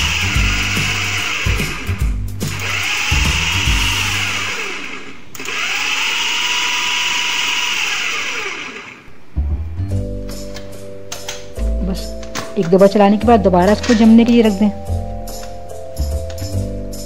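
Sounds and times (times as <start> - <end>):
food processor motor whining: 0.0 - 9.1.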